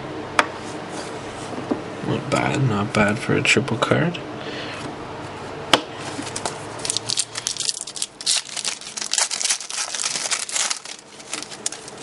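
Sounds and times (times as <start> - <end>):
foil wrapper crinkling and tearing: 6.3 - 12.0.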